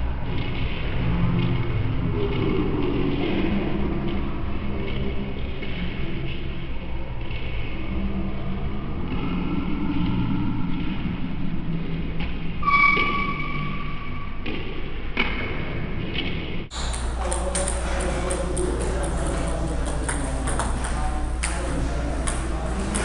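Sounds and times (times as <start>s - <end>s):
steady low hum: 0.0s - 23.0s
table tennis balls tapping: 16.7s - 23.0s
voices in background: 16.7s - 23.0s.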